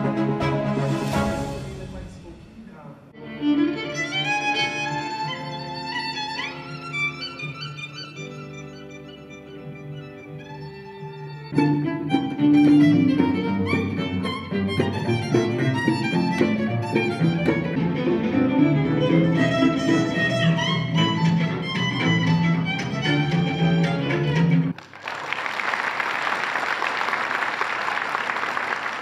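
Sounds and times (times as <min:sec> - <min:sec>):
violins playing: 0:00.0 - 0:24.8
accordion: 0:03.2 - 0:24.7
double bass: 0:11.6 - 0:24.7.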